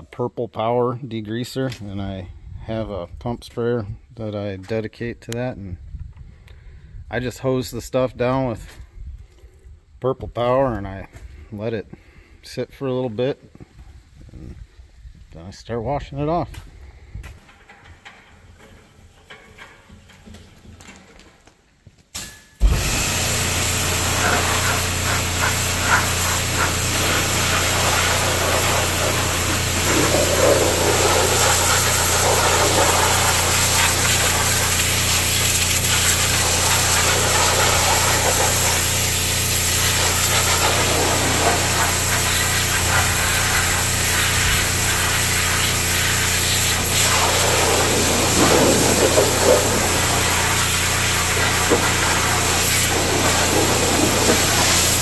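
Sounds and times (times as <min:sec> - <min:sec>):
pressure washer motor humming: 0:22.6 - 0:55.0
water jet spraying: 0:22.6 - 0:55.0.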